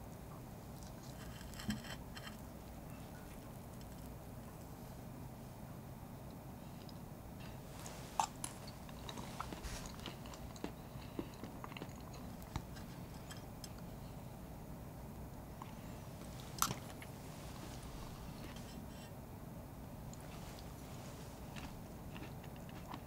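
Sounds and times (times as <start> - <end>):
chewing crunchy cake: 0.7 - 4.7, 6.7 - 14.0, 15.5 - 19.0, 20.0 - 23.0.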